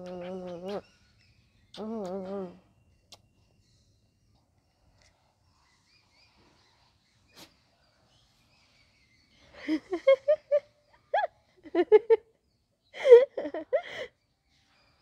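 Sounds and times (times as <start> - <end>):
dog yipping and grunting: 0.0 - 1.0.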